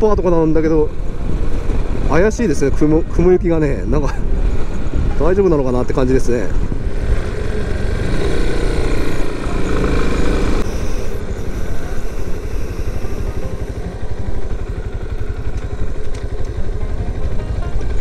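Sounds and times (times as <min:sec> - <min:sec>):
motorcycle engine running: 0:04.2 - 0:18.0.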